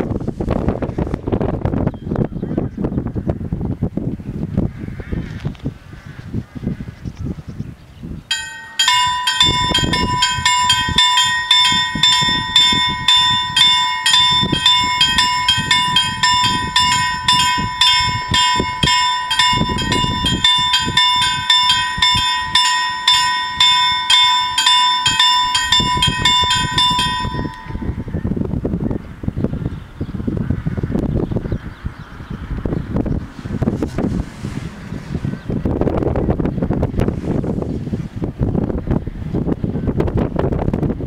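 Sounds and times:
level crossing warning bells ringing: 0:08.3 - 0:28.2.

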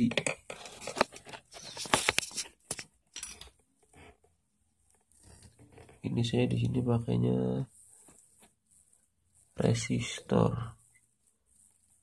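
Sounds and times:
rustling: 0:03.7 - 0:12.0.

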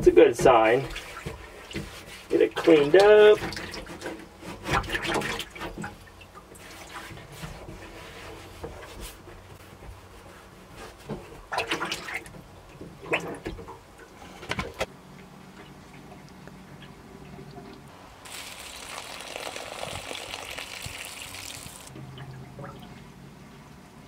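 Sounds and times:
water splashing in metal sink: 0:18.3 - 0:22.8.

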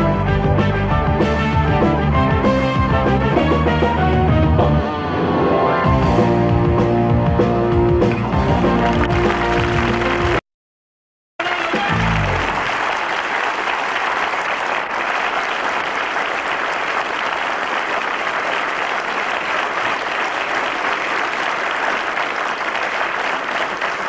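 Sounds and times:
audience applauding: 0:08.2 - 0:10.4, 0:11.4 - 0:24.0.

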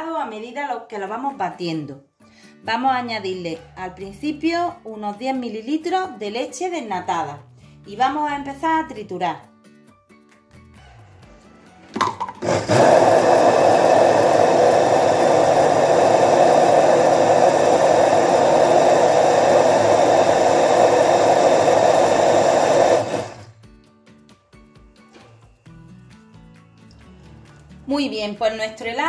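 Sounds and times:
blender crushing frozen fruit: 0:12.0 - 0:23.6.

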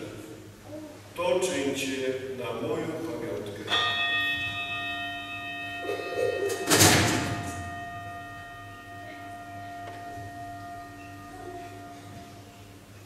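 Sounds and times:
jangling bell strike: 0:03.7 - 0:12.4
bell ringing: 0:03.7 - 0:13.0.

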